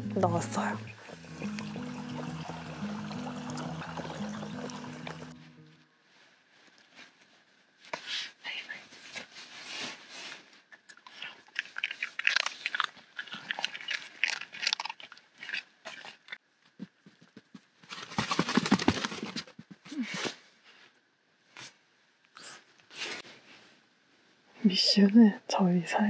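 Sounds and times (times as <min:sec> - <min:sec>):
rustling: 0:06.0 - 0:24.6
dog chewing and crunching: 0:10.9 - 0:16.4.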